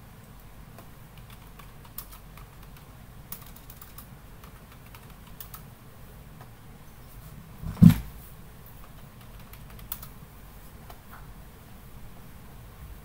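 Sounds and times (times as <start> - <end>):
computer keyboard keystrokes: 0.8 - 5.6, 8.8 - 10.1.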